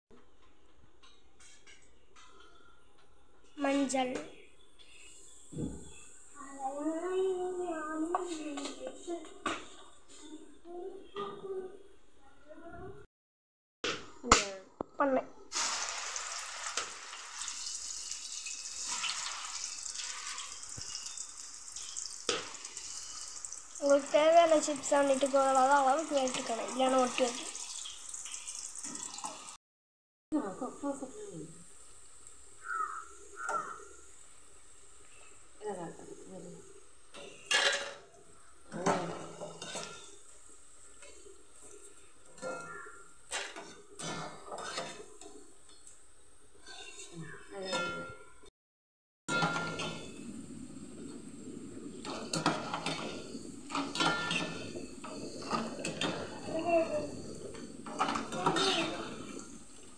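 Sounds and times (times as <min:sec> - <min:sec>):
oil sizzling in a pan: 0:04.9 - 0:08.7, 0:15.5 - 0:29.6, 0:30.4 - 0:47.0, 0:49.3 - 0:59.9.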